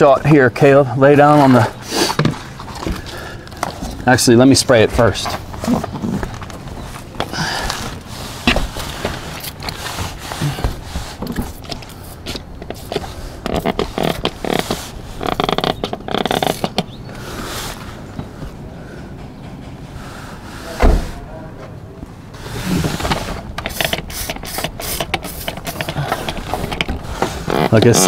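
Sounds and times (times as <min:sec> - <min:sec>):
scraping and handling noises: 0:01.3 - 0:16.9, 0:22.4 - 0:28.0
spray bottle squirting: 0:11.2 - 0:16.9, 0:23.5 - 0:27.0.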